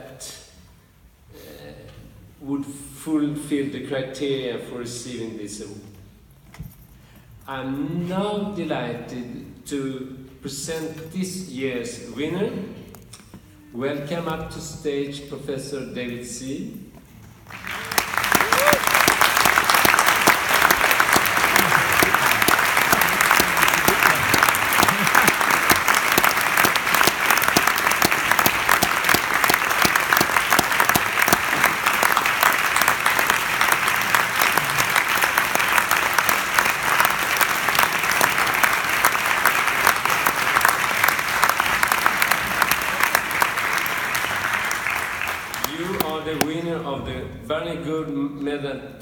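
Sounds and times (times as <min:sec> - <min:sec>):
audience applauding: 0:17.5 - 0:46.5.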